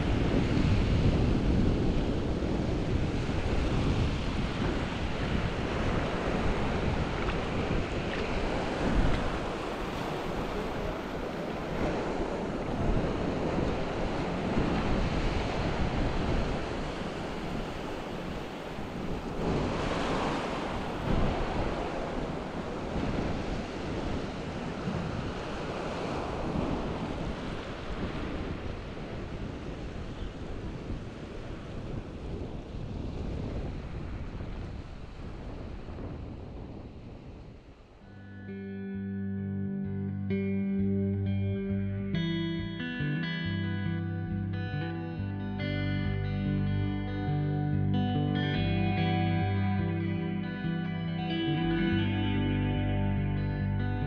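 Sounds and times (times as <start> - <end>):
ocean waves breaking: 0.0 - 38.2
wind on microphone: 0.0 - 38.6.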